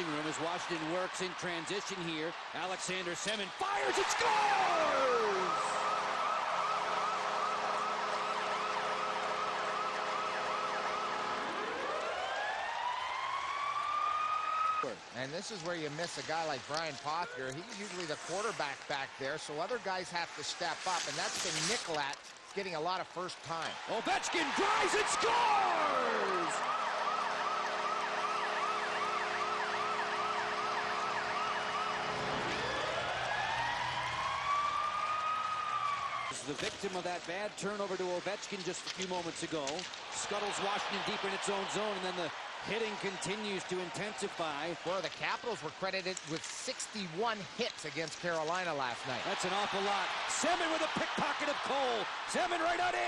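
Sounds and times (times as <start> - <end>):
crowd cheering: 0.0 - 14.9, 23.6 - 36.5, 39.8 - 45.0, 49.0 - 53.0
goal siren warbling: 4.6 - 14.9, 24.5 - 36.3
siren winding up in pitch: 26.1 - 35.0.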